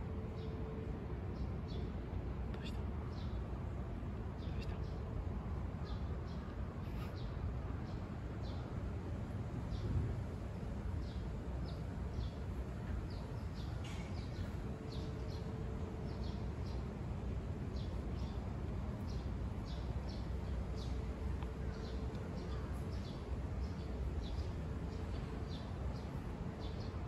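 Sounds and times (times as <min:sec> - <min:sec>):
small birds chirping: 0:02.5 - 0:03.4.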